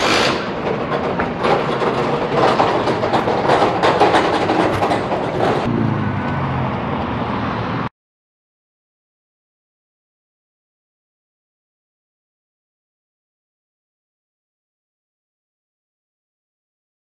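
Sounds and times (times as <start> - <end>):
loud outdoor clatter and rumble: 0.0 - 7.9
low engine-like hum: 3.9 - 7.9.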